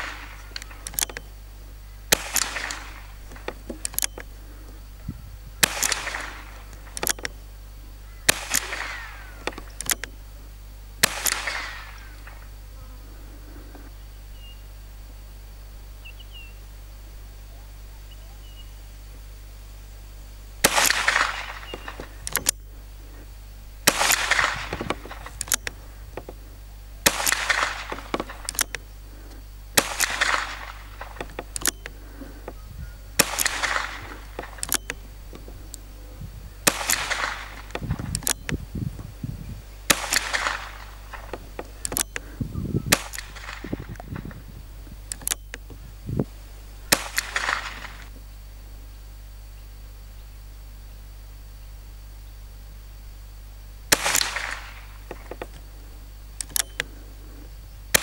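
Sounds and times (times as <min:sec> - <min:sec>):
gunshots with echo: 0:02.1 - 0:03.7, 0:05.6 - 0:07.0, 0:08.3 - 0:10.1, 0:11.0 - 0:12.4, 0:20.6 - 0:22.5, 0:23.8 - 0:26.3, 0:27.0 - 0:28.6, 0:29.8 - 0:32.5, 0:33.2 - 0:34.6, 0:36.6 - 0:38.0, 0:39.9 - 0:44.3, 0:46.9 - 0:48.1, 0:53.9 - 0:55.1.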